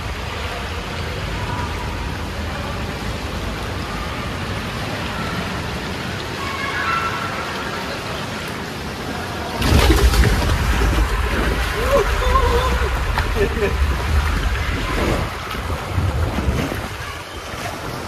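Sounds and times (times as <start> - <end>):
water rushing down waterslide: 0.0 - 18.0.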